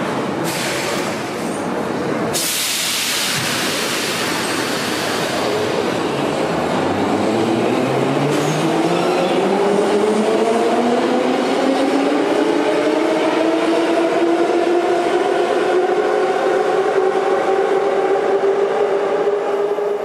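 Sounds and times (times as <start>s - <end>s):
train air hiss: 0.4s - 1.2s, 2.3s - 5.8s.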